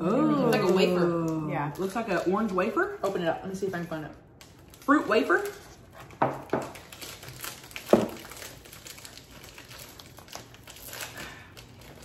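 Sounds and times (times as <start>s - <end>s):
snack wrapper crinkling: 4.4s - 12.0s.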